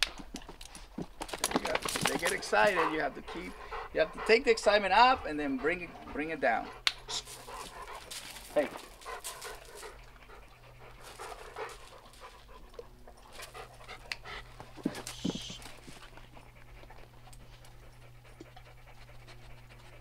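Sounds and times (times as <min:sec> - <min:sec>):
dog panting: 0:00.3 - 0:20.0.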